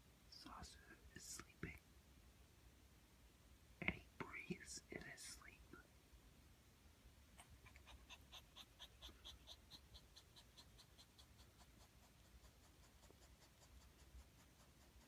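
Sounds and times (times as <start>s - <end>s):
puppy panting breaths: 7.4s - 15.0s.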